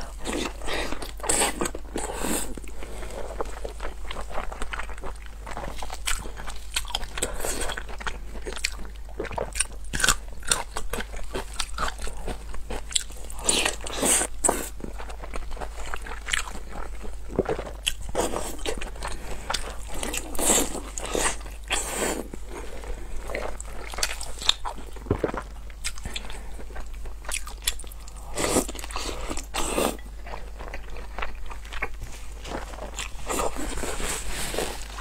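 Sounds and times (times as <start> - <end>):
person biting and chewing: 3.4 - 14.7.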